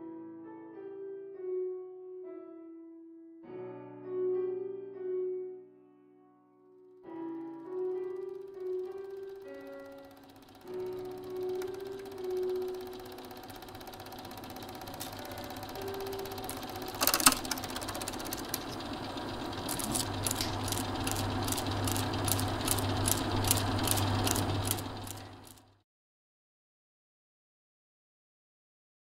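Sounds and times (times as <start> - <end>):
small machine clattering: 7.6 - 25.7.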